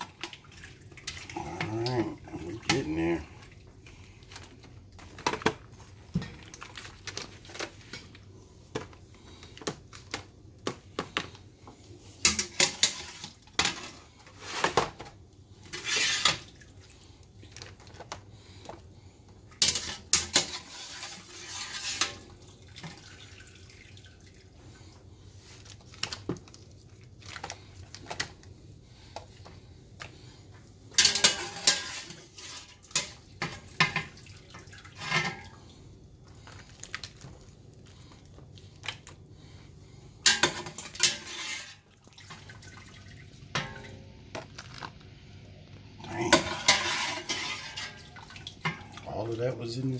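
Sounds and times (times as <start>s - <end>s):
water splashing and dripping: 21.8s - 24.6s, 33.7s - 35.6s, 41.3s - 43.9s, 46.4s - 49.2s
metal skimmer clattering on pot: 30.9s - 34.2s, 40.2s - 41.8s, 46.2s - 49.1s.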